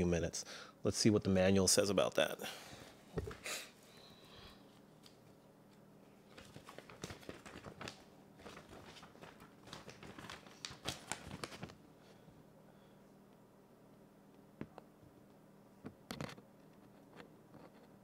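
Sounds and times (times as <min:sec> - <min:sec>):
paper rustling and crinkling: 0:06.3 - 0:11.8.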